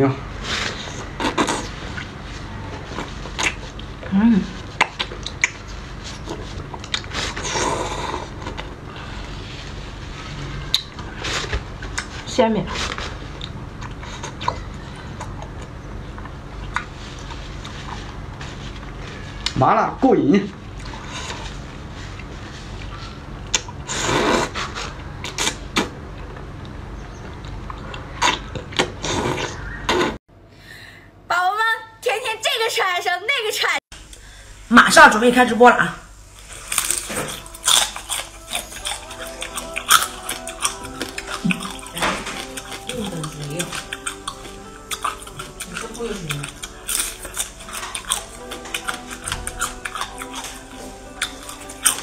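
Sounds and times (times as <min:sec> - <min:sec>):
low steady hum: 0:00.0 - 0:32.1, 0:33.9 - 0:52.0
soft mouth sounds: 0:00.9 - 0:02.2, 0:27.8 - 0:30.2, 0:36.4 - 0:52.0
wet chewing smacks and clicks: 0:04.7 - 0:05.7, 0:06.3 - 0:07.4, 0:36.9 - 0:52.0
person slurping food: 0:07.0 - 0:08.6, 0:23.8 - 0:24.8.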